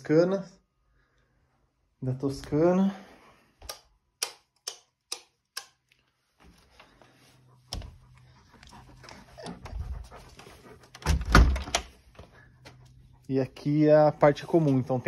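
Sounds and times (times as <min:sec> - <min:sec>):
faint shuffling: 0:12.0 - 0:15.0.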